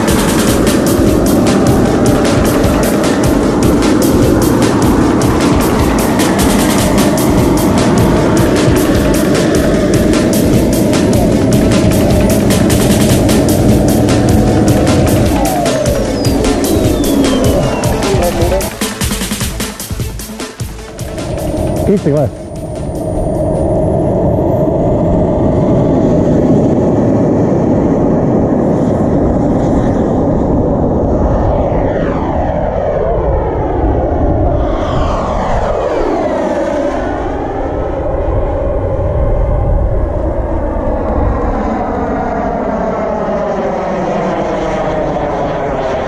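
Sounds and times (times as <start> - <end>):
model jet turbine rush: 0.0 - 20.1
jet whooshing past: 0.0 - 46.0.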